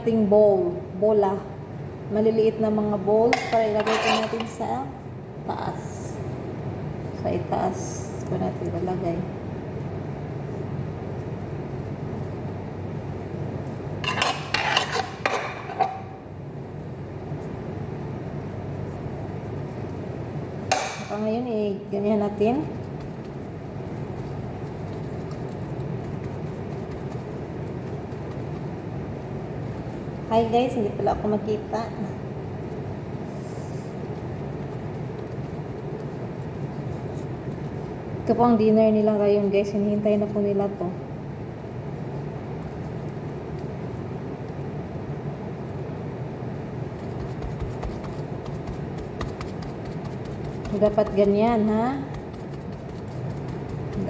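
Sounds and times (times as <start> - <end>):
low mechanical hum: 0.0 - 54.0
plastic gloves crinkling: 22.7 - 30.2, 46.8 - 54.0.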